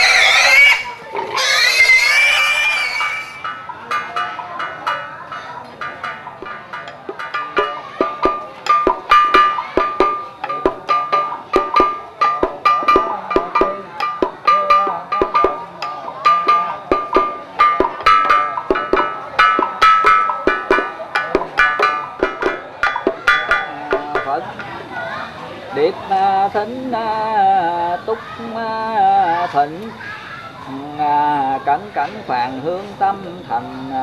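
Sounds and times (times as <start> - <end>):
high string instrument notes: 0.0 - 25.5.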